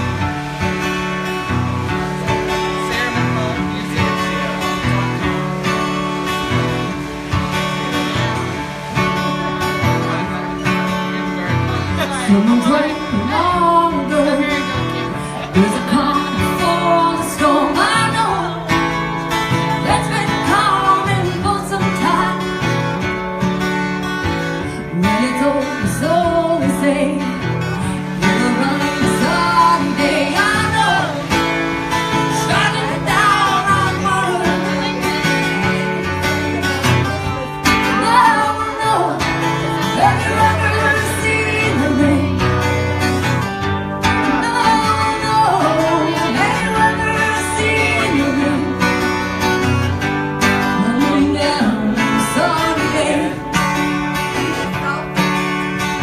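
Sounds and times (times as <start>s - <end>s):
guitar chords: 0.0s - 56.0s
woman singing: 12.0s - 23.0s, 24.6s - 36.3s, 37.6s - 43.4s, 44.0s - 55.3s.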